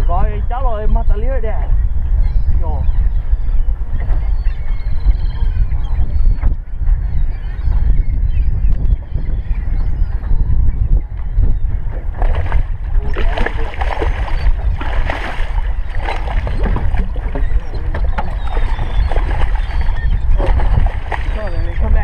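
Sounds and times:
wind rumble on microphone: 0.0 - 22.0
fish splashing in water: 12.1 - 22.0.

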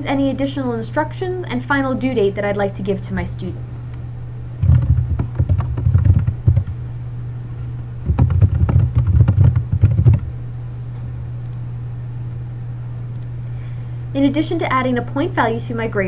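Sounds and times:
low electrical hum: 0.0 - 16.0
typing on computer keyboard: 4.6 - 6.7, 8.1 - 10.3.

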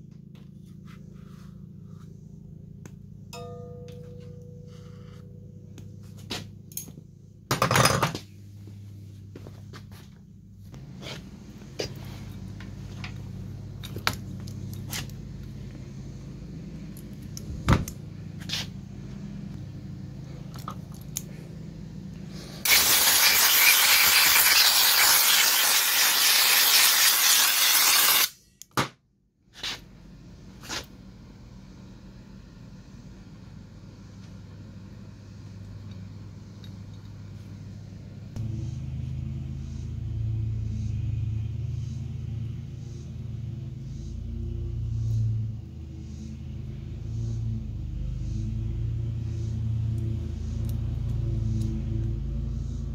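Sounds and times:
low steady hum: 0.0 - 22.7, 28.3 - 52.9
loud steady hiss: 22.6 - 28.3.

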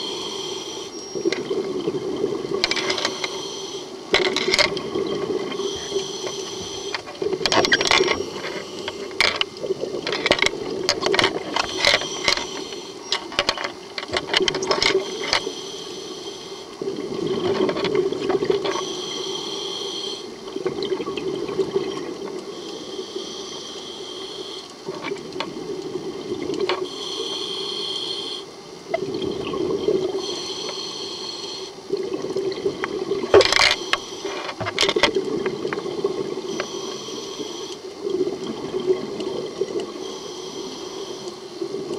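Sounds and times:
regulator inhale hiss: 0.0 - 1.2, 2.8 - 4.1, 5.5 - 7.1, 7.8 - 9.2, 11.5 - 13.1, 15.0 - 16.8, 18.6 - 20.4, 22.5 - 24.9, 26.8 - 28.6, 30.1 - 31.9, 33.6 - 34.6, 36.4 - 38.0, 39.8 - 41.7
crackling exhaust bubbles: 0.0 - 41.9.

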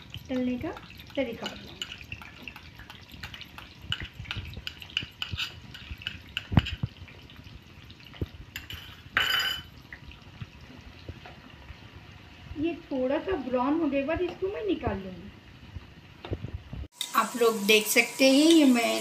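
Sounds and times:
spoon scraping and knocking a pan: 0.3 - 7.2, 8.1 - 9.7.

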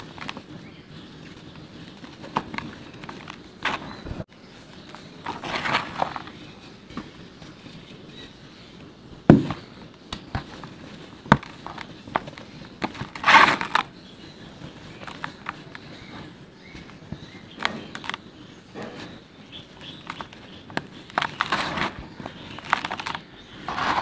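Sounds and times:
dry dirt crumbling by hand: 4.8 - 8.2, 9.3 - 24.0
sharp cracks of dirt: 11.2 - 14.0, 19.8 - 24.0.

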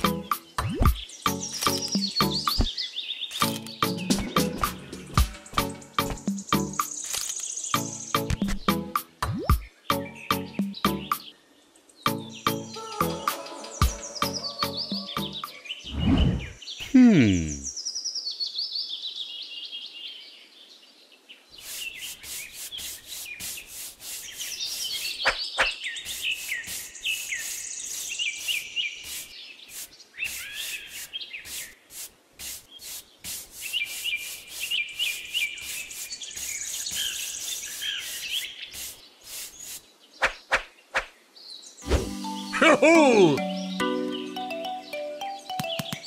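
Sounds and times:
birds chirping: 0.0 - 19.2, 21.1 - 31.9, 32.6 - 46.0
brush sweeping sand on plastic: 21.6 - 25.2, 25.8 - 39.9.

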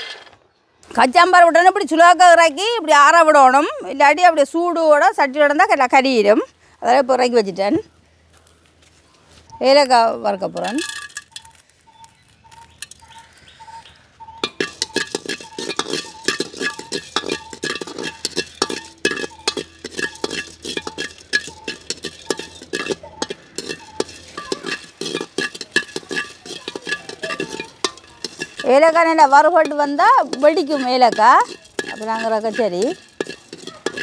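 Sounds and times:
wooden spatula scraping a metal wok: 14.4 - 34.0.

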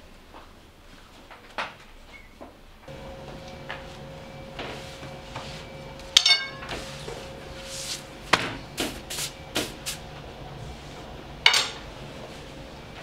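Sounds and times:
faint steady hum: 2.8 - 13.0
metal utensils clanking: 6.0 - 7.6.

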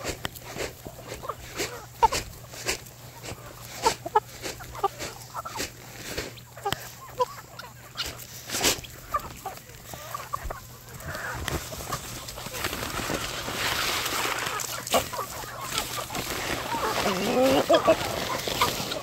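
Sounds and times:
chickens clucking: 0.0 - 19.0.

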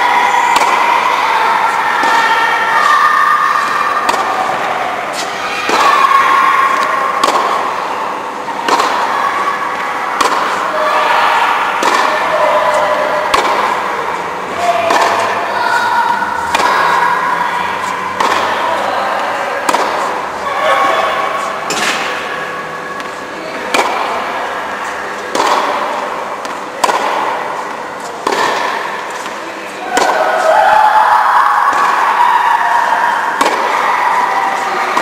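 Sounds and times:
tennis balls struck by rackets: 0.3 - 2.6, 3.5 - 30.5, 31.7 - 35.0.

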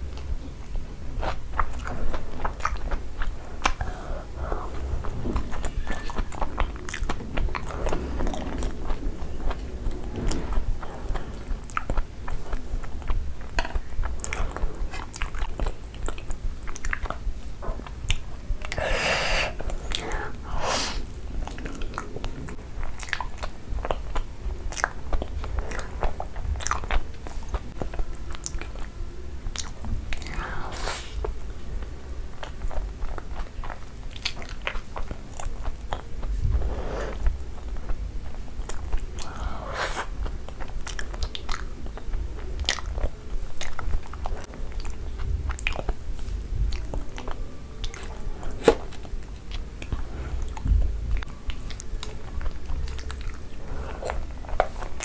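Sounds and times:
wet chewing: 0.0 - 55.0.

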